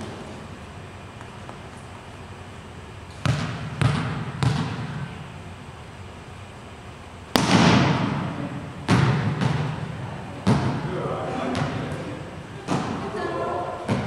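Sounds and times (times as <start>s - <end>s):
volleyball being hit smack: 3.2s - 5.0s, 7.3s - 8.3s, 8.9s - 9.8s, 10.4s - 10.8s
volleyball thuds echoing: 3.2s - 5.2s, 7.3s - 13.1s.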